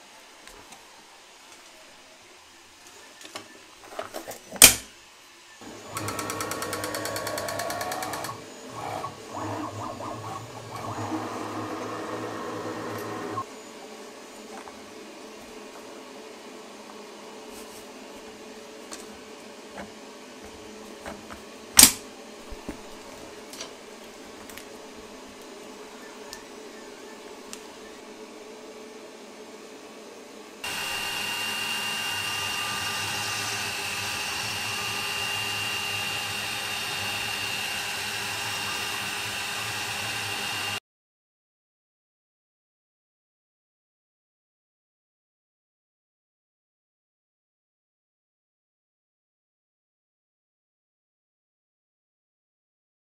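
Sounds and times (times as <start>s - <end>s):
sharp loud click: 4.6s - 4.9s, 21.8s - 22.0s
router spindle cutting plywood: 5.6s - 13.4s, 30.6s - 40.8s
dust extraction vacuum running: 5.6s - 40.8s.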